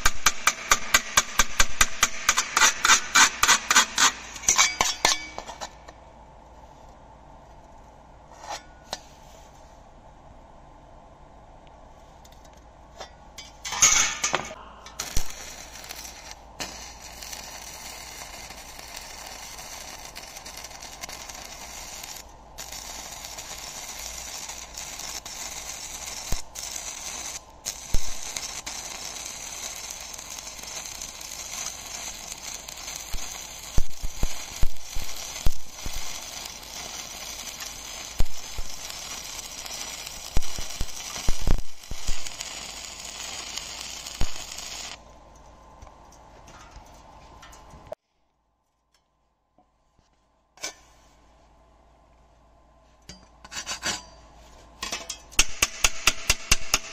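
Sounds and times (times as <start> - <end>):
welding arc crackling sizzle: 0.0 - 5.9, 13.5 - 46.2, 54.8 - 56.9.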